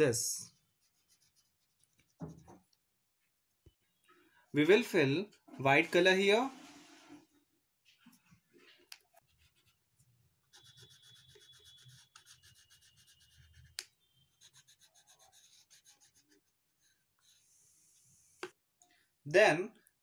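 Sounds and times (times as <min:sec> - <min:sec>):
crayon rubbing on paper: 0:00.5 - 0:02.1, 0:10.5 - 0:18.5.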